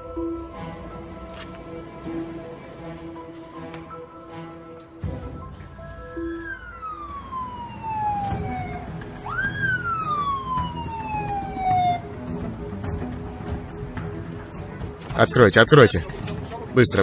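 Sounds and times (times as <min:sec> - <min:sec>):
ambulance siren wailing: 0:04.1 - 0:13.5.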